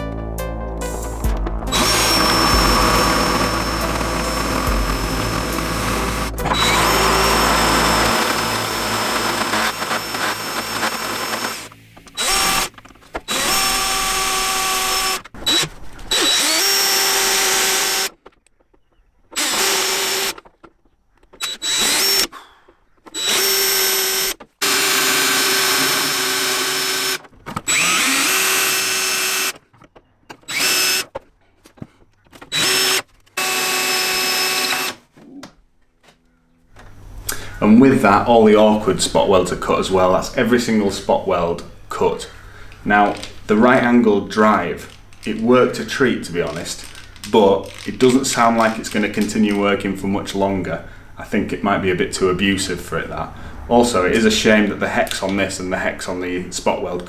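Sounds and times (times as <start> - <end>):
cordless drill cutting metal: 1.7 - 18.2, 19.4 - 20.5, 21.4 - 22.3, 23.1 - 29.6, 30.4 - 31.1, 32.5 - 35.0.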